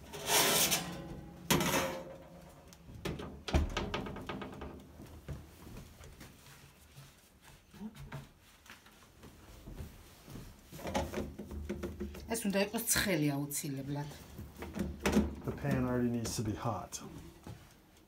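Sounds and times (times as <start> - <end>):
dough being kneaded and handled: 5.0 - 13.0.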